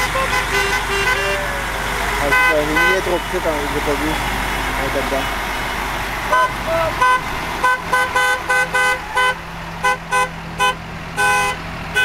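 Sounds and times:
vehicle horn honks: 0.0 - 3.3, 6.3 - 12.0
trucks driving past: 0.0 - 12.0.

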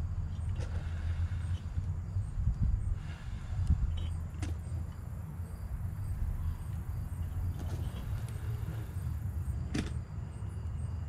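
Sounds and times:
crickets chirping: 0.0 - 11.0
steady low rumble: 0.0 - 11.0.

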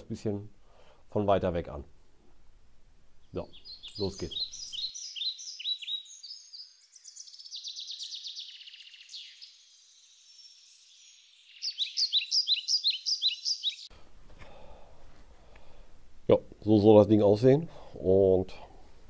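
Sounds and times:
bird chirping: 3.1 - 13.9.

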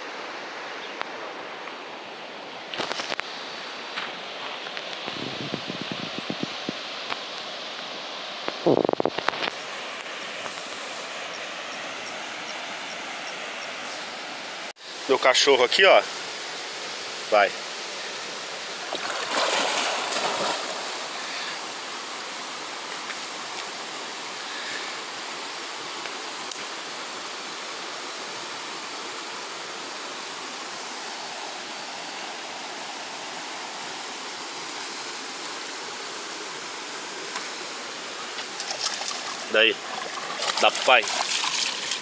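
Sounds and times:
stream running into rocky pool: 0.0 - 42.0
water splashing close by: 18.8 - 21.6, 38.2 - 42.0.

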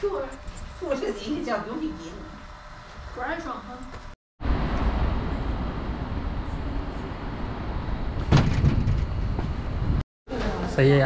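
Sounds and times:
road vehicle rumble: 4.4 - 10.0.

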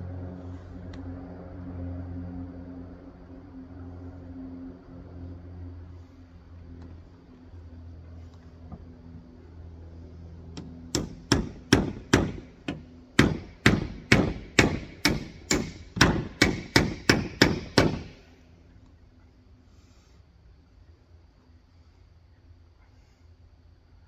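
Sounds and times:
hammer driving nails: 10.6 - 18.2.

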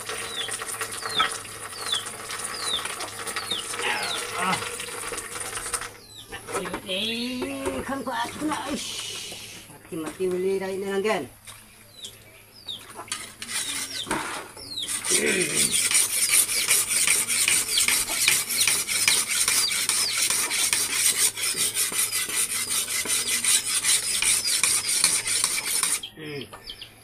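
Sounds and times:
knife sharpening on whetstone: 13.1 - 26.0.

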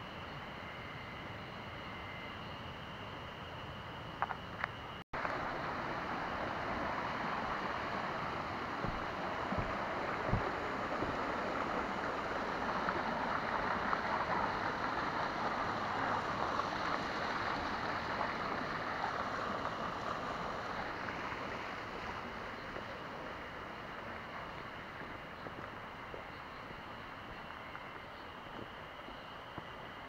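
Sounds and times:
stream rushing over rocks: 5.2 - 28.6.

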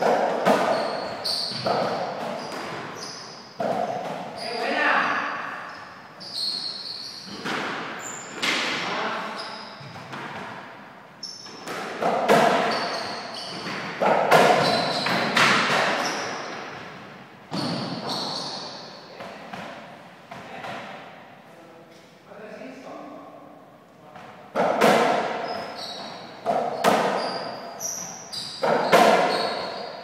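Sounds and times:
ball hits echoing in hall: 0.0 - 10.8, 11.5 - 21.3, 24.1 - 30.0.

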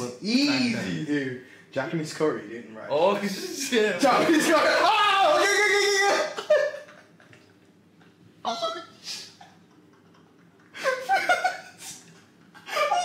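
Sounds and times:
man laughing: 5.8 - 7.4, 9.1 - 13.0.

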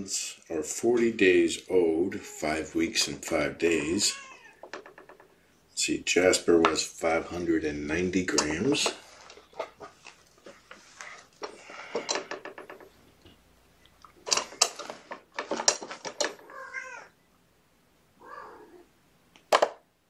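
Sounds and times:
kitten mewing: 18.2 - 18.8.

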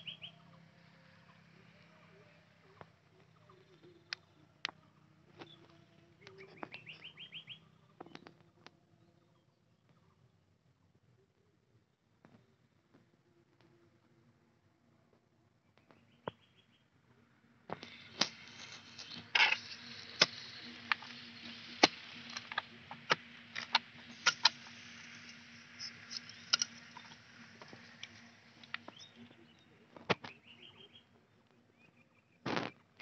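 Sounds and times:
grass and earth rustling: 17.7 - 31.0.

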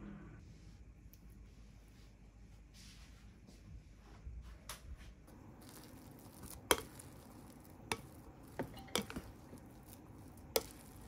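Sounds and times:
rice paddle stirring rice: 5.3 - 11.0
utensils clinking against dishes: 8.6 - 9.5.

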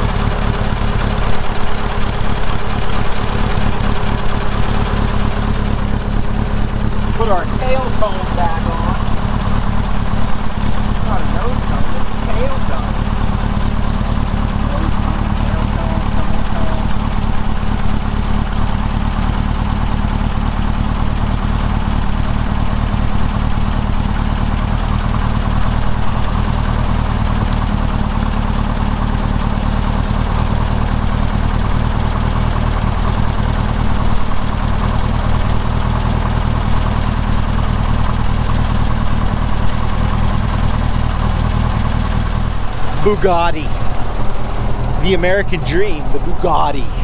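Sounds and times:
engine idling: 0.0 - 47.0.

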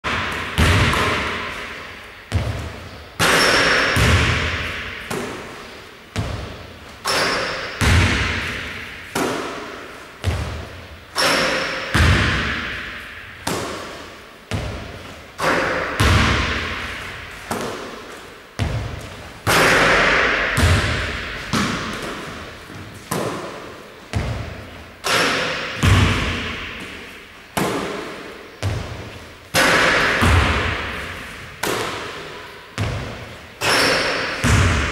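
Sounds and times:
basketball bouncing on hardwood floor: 0.1 - 1.5, 2.3 - 5.4, 6.2 - 6.5, 7.1 - 8.6, 10.2 - 10.6, 11.9 - 12.7, 14.5 - 16.8, 18.6 - 19.2, 20.5 - 23.5, 25.7 - 26.9, 32.8 - 33.2, 34.2 - 34.9
basketball hitting hoop: 0.1 - 5.6, 6.2 - 18.0, 18.6 - 27.0, 27.6 - 34.9.

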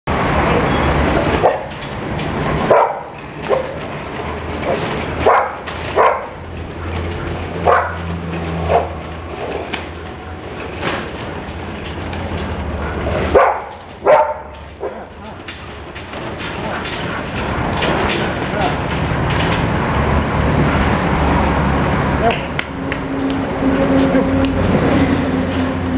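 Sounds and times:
treadmill low rumble: 1.1 - 25.9
dog barking: 1.4 - 1.7, 2.7 - 3.8, 4.7 - 6.4, 7.6 - 9.0, 12.8 - 15.1.

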